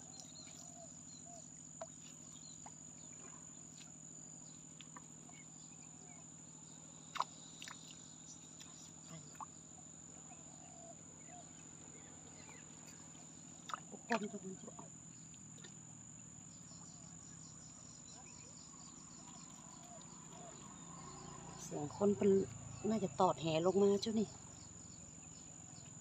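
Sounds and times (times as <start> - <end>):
crickets chirping: 0.0 - 26.0
faint clicks and chirps: 7.1 - 9.6, 19.1 - 20.8.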